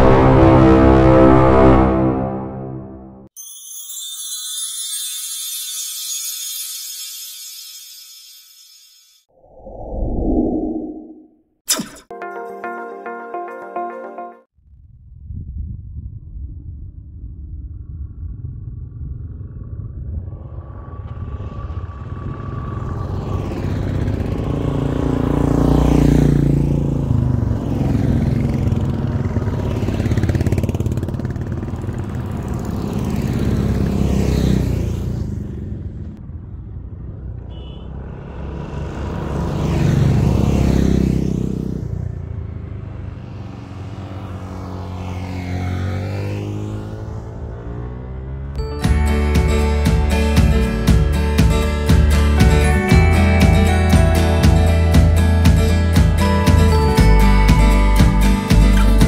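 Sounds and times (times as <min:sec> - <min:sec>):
motorcycles riding past: 0:20.3 - 0:48.6.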